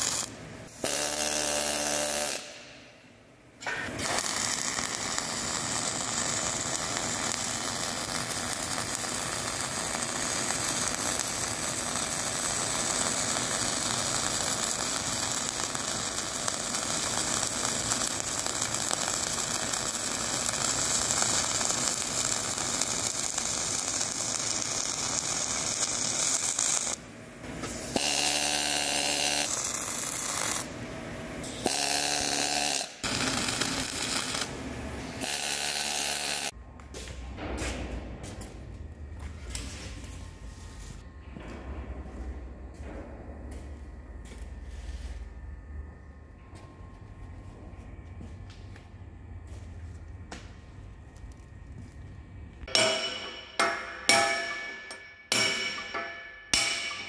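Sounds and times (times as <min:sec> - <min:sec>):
welding arc crackling: 0:00.0 - 0:02.8, 0:03.6 - 0:30.8, 0:31.4 - 0:36.6.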